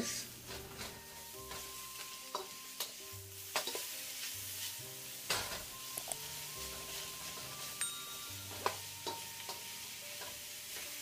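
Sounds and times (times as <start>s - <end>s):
onions sizzling in oil: 0.0s - 11.0s
spatula scraping a wok: 0.5s - 7.8s.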